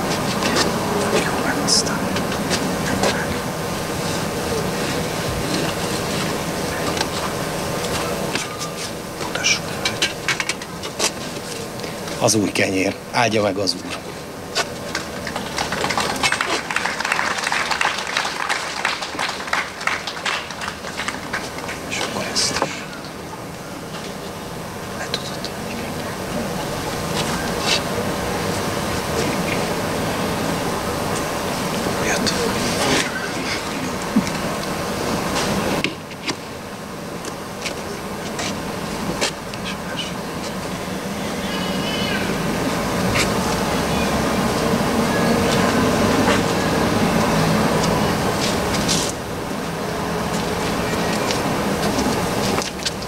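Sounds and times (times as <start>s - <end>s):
audience applauding: 14.9s - 22.1s.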